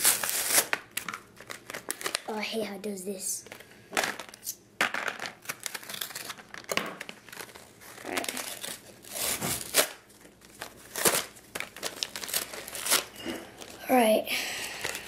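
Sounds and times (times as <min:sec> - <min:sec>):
cardboard tearing: 0:00.0 - 0:00.8, 0:05.4 - 0:13.8
plastic packaging crinkling: 0:00.0 - 0:02.4, 0:03.4 - 0:15.0.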